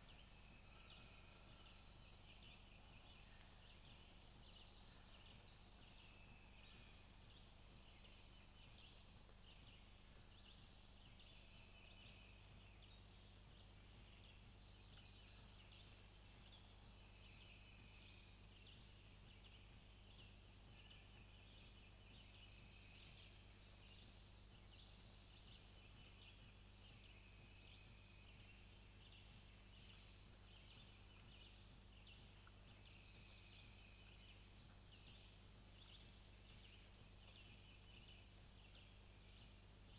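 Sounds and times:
faint high-pitched chirping: 0.0 - 39.9
steady low hum: 0.0 - 39.9.

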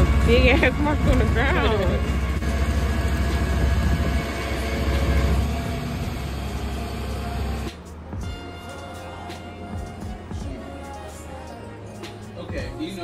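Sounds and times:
tow truck engine and winch rumble: 0.0 - 8.0.

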